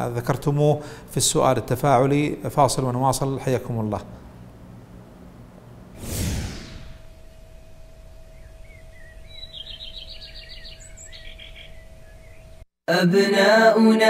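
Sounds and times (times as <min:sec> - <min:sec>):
faint steady hum: 0:00.0 - 0:06.0, 0:06.6 - 0:12.6
whoosh sweeping down: 0:06.0 - 0:07.1
birds chirping and trilling: 0:08.2 - 0:12.6.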